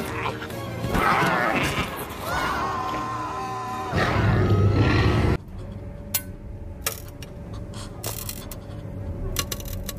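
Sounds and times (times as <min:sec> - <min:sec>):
dinosaur roar: 0:03.9 - 0:05.4.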